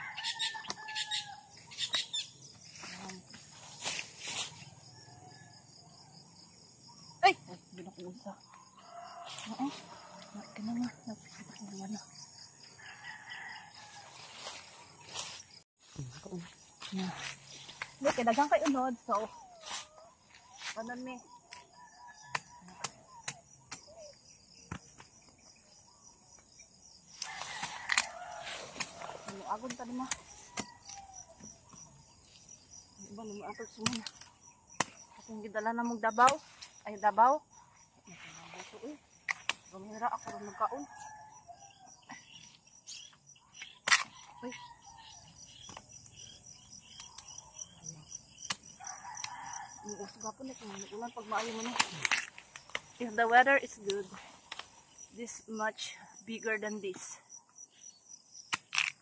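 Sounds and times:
pulsing insect chirp: 0.0s - 59.0s
rustling noise: 2.7s - 4.8s, 13.8s - 15.7s
insects buzzing: 6.4s - 59.0s
knife chopping roots: 33.8s - 35.1s.

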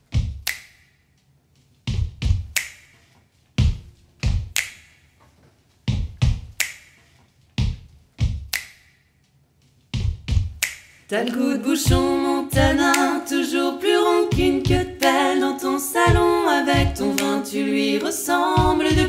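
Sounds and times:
finger snaps: 0.4s - 0.9s, 2.5s - 3.0s, 4.5s - 5.0s, 6.6s - 7.0s, 8.5s - 9.0s, 10.6s - 11.4s, 17.1s - 17.4s
foot stomps on wooden floor: 1.9s - 2.5s, 5.9s - 6.6s, 7.6s - 8.5s, 10.0s - 10.6s.

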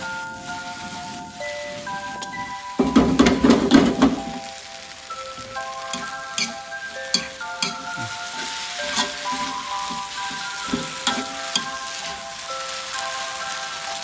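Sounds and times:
food sizzling in a wok: 0.0s - 14.0s
metal spatula scraping a pan: 5.9s - 12.5s.

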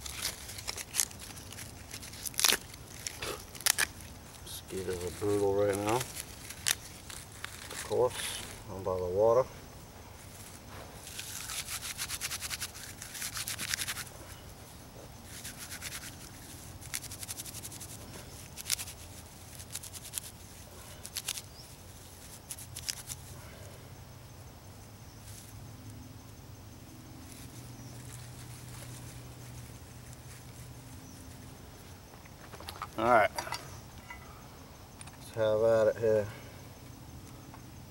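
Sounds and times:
bark and tinder crackling rustle: 0.0s - 9.2s, 10.1s - 23.4s, 27.2s - 33.2s.

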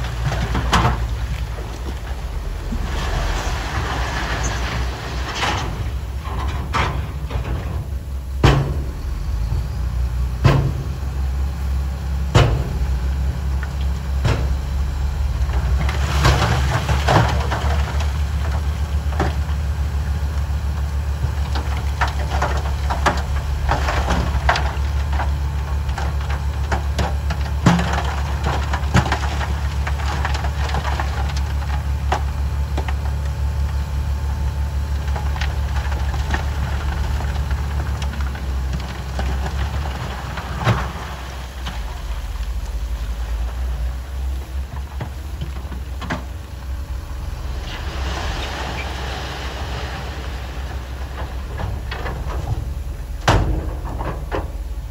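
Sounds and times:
stones tumbling and clattering: 0.0s - 11.0s, 12.4s - 54.9s
diesel engine running: 0.0s - 54.9s.

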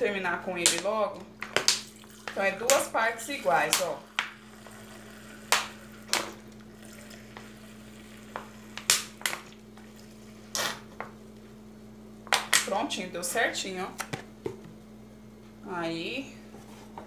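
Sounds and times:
liquid trickling into a glass: 1.9s - 2.4s, 3.6s - 8.8s.

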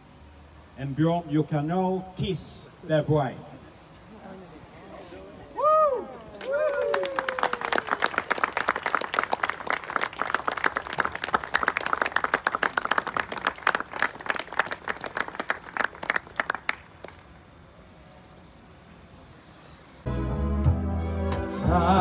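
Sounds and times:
crowd clapping: 6.2s - 17.3s.

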